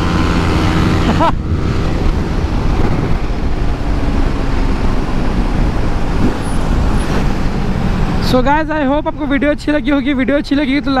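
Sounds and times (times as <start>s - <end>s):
motorcycle engine at speed: 0.0s - 8.2s
wind rush over helmet: 0.5s - 8.2s.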